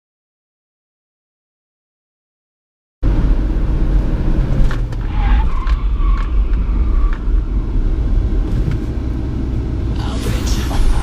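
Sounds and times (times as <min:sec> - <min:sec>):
road and engine rumble: 0:03.0 - 0:11.0.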